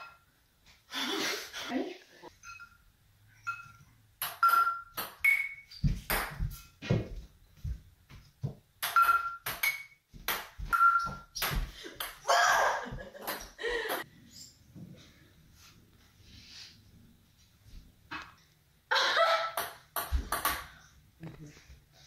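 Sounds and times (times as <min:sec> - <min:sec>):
ball bouncing on countertop: 0:05.8 - 0:07.2, 0:08.1 - 0:12.2, 0:19.6 - 0:20.7.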